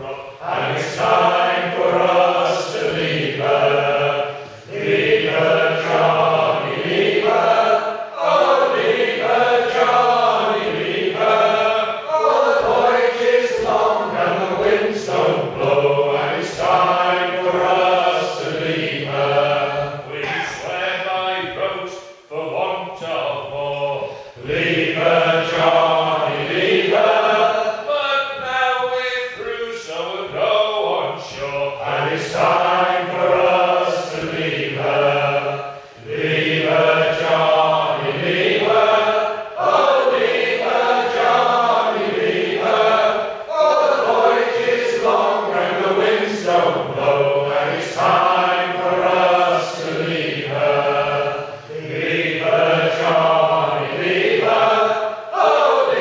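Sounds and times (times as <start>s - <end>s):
men singing together unaccompanied: 0.0s - 56.0s.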